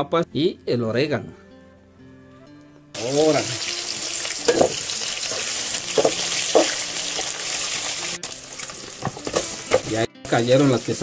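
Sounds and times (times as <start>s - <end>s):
onions sizzling in hot oil: 3.0s - 11.0s.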